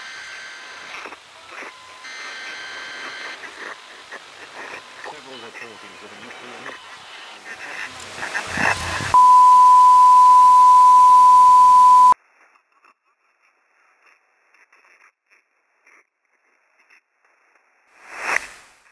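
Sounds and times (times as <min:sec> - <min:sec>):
static hiss: 0:00.0 - 0:12.2
faint crackles: 0:00.6 - 0:09.2
loud pure test beep: 0:08.6 - 0:12.2.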